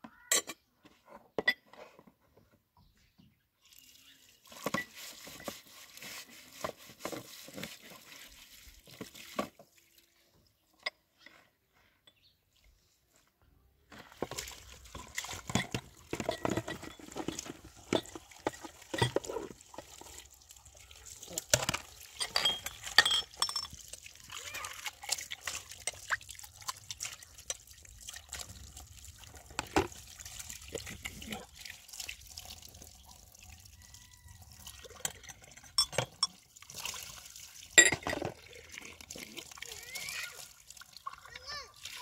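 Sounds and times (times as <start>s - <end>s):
water splashing and running: 3.8s - 10.2s, 13.9s - 35.8s, 36.4s - 42.0s
pots and dishes clinking: 4.5s - 5.7s, 14.9s - 20.2s, 21.4s - 23.8s, 34.9s - 36.4s, 37.8s - 38.4s.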